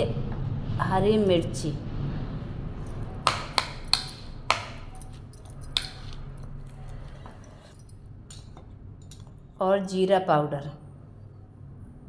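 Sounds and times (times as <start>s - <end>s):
metal spoon clinking: 3.8s - 6.7s.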